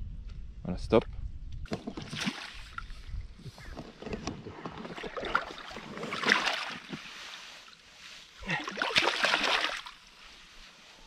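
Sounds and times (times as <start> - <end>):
water splashing and sloshing: 1.7 - 10.4.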